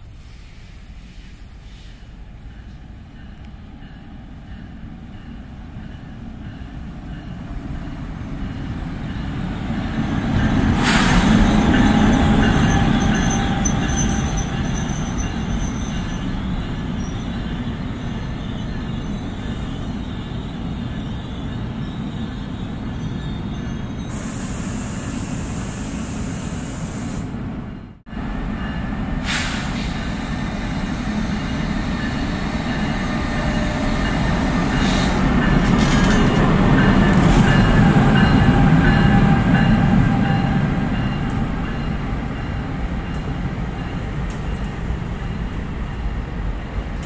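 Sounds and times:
train rumbling past on rails: 0.0s - 47.0s.

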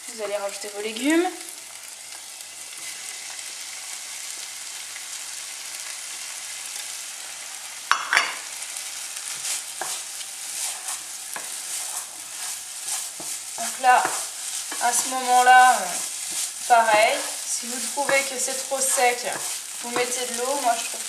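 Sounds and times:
food sizzling in a frying pan: 0.0s - 21.0s
wooden spoon scraping a pan: 8.8s - 21.0s.

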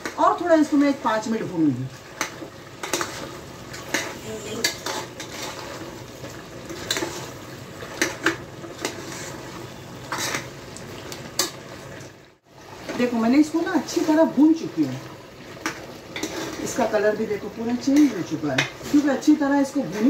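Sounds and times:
steady sizzle: 0.0s - 20.0s
spoon stirring and scraping pot: 2.0s - 11.6s, 15.5s - 17.0s, 17.6s - 20.0s.

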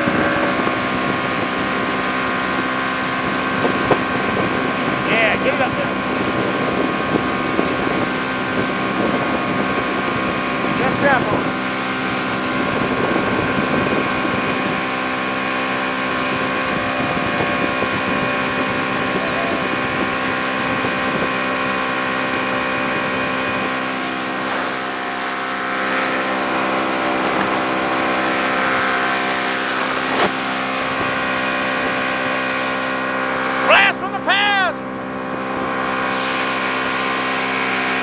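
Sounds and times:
wind buffeting microphone: 0.0s - 5.1s, 5.8s - 24.7s
motorboat engine droning: 0.0s - 38.0s
rushing water: 0.0s - 38.0s.

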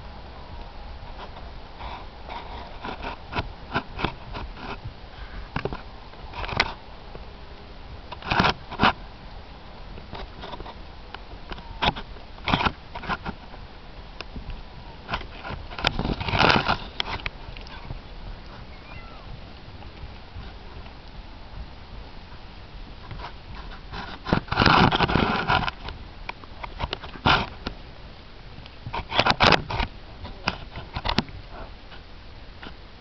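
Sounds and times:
saddle knocks and scrapes: 15.1s - 18.8s, 23.0s - 26.0s.

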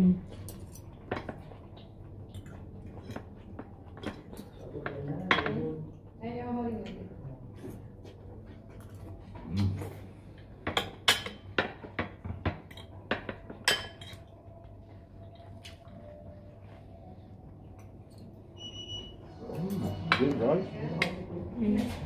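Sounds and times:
cutlery clinking on plates: 10.6s - 14.3s.

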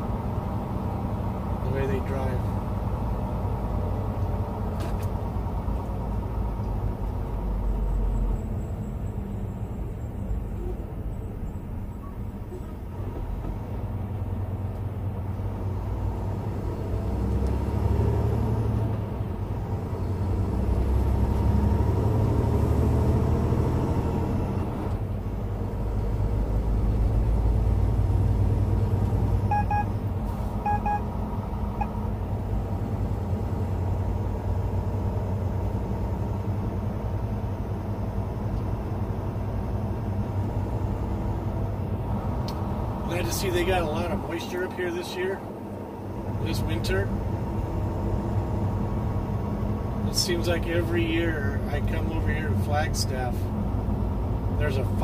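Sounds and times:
truck engine and road rumble: 0.0s - 55.0s
quick double beeps: 29.5s - 29.9s, 30.6s - 31.0s.

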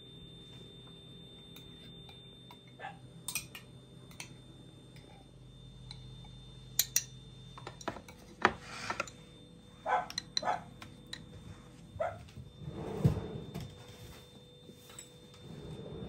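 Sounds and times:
spoon clinking against glass: 2.6s - 4.4s, 6.8s - 8.2s.

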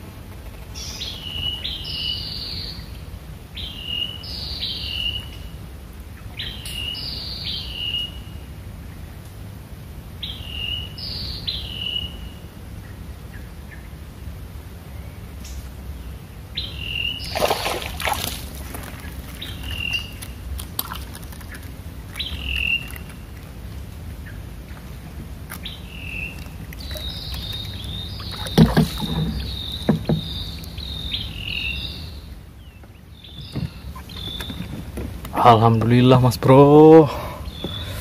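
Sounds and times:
low steady rumble: 0.0s - 38.0s
birds chirping: 0.4s - 9.2s, 10.2s - 38.0s
knocks and rustles: 28.3s - 30.4s, 33.4s - 35.4s.

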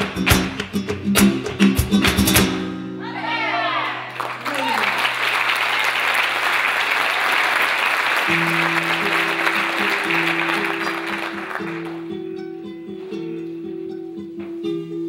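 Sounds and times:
flamenco guitar: 0.0s - 4.1s, 8.2s - 15.0s
audience applause: 3.8s - 12.1s.

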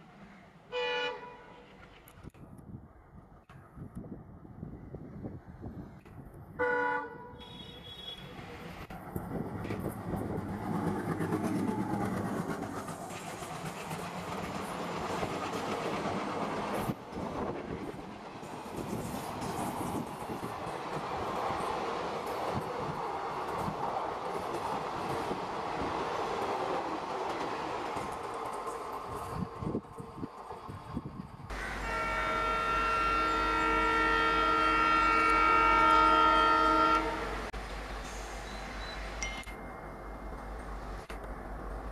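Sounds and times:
train horn blast: 0.7s - 1.6s, 6.6s - 8.2s, 31.5s - 37.4s
low train rumble: 8.1s - 41.9s
train wheels clattering over rail joints: 9.2s - 17.0s.

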